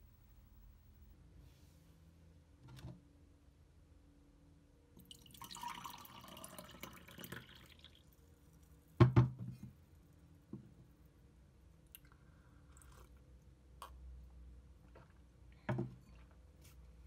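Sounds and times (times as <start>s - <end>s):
water pouring into a glass: 5.0s - 8.2s.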